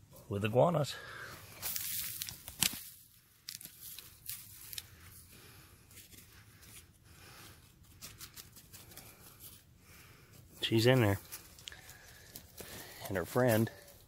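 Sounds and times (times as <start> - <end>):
dry straw rustling and crackling: 1.5 - 5.3, 5.9 - 9.7, 10.6 - 14.0.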